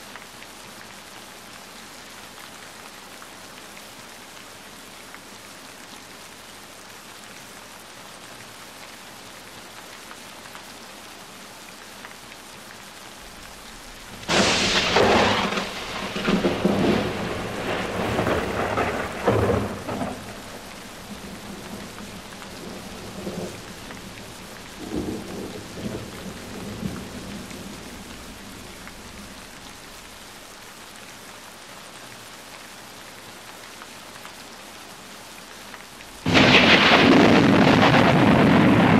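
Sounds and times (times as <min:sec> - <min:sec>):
steady rain falling: 0:00.0 - 0:38.9
thunder rumbling: 0:13.2 - 0:30.2, 0:36.2 - 0:38.9.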